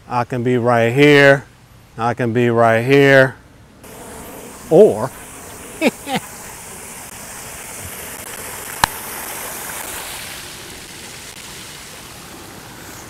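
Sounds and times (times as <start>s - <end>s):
fountain water splashing: 3.9s - 13.0s.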